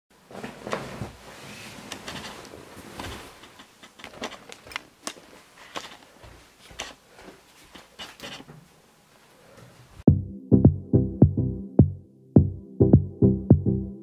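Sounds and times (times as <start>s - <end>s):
hand rustling a duvet: 0.1s - 8.0s.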